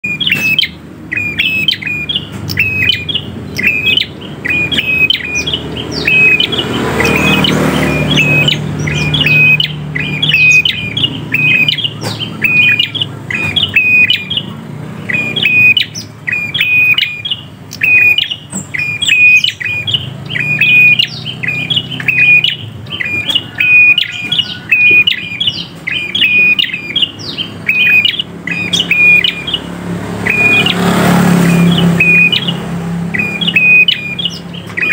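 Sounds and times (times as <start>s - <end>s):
bird chirping: 0.0s - 34.9s.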